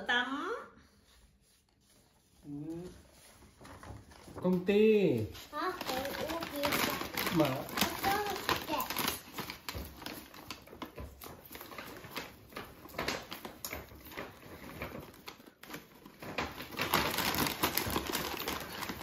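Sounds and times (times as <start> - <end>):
paper bag rustling: 1.4 - 19.0.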